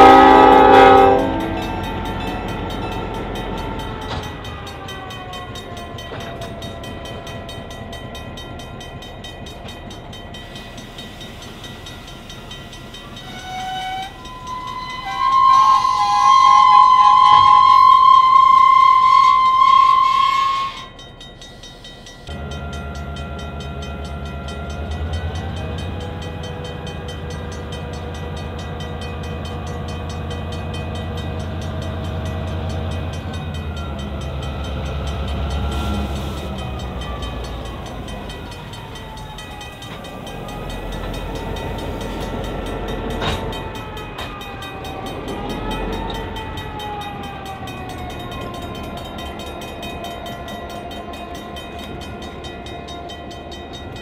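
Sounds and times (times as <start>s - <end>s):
diesel locomotive horn: 0.0s - 6.3s, 13.1s - 21.0s, 22.3s - 49.4s
diesel locomotive engine running: 0.0s - 54.0s.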